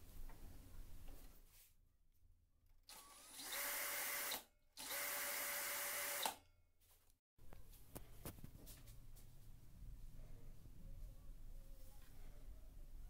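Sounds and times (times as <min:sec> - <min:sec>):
cordless drill whirring with whine: 0:02.9 - 0:06.4.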